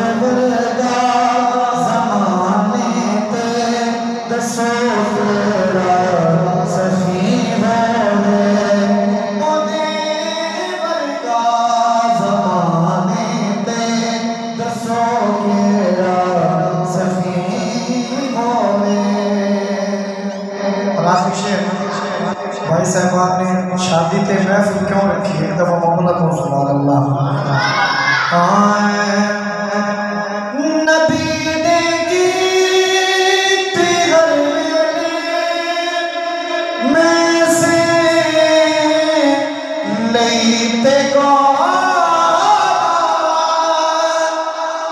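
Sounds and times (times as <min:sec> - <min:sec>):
man singing over loudspeaker: 0:00.0 - 0:44.9.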